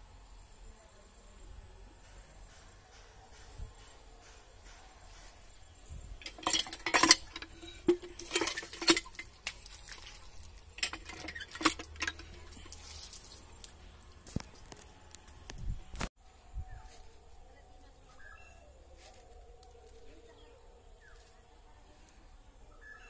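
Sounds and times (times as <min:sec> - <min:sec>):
metal cooking pots clattering: 0:06.2 - 0:12.8.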